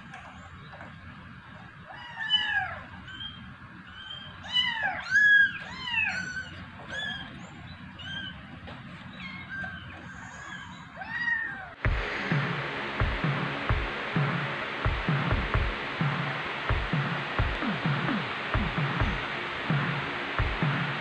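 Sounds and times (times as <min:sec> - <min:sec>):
low thumps: 0:11.8 - 0:21.0
steady hiss: 0:11.8 - 0:21.0.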